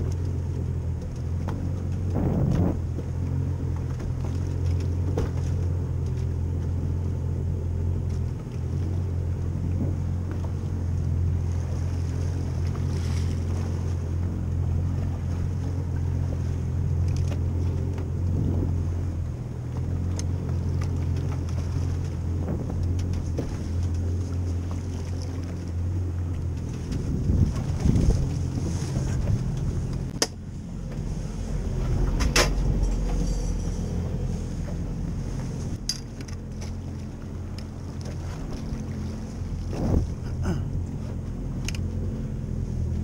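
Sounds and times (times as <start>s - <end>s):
outboard motor idling: 0.0s - 43.0s
sharp knocks on boat: 0.9s - 6.3s, 22.3s - 25.7s, 26.3s - 31.1s, 31.9s - 33.2s, 39.6s - 41.8s
wind on microphone: 2.0s - 3.2s, 18.2s - 19.0s, 22.3s - 23.8s, 26.6s - 30.2s, 39.4s - 40.4s.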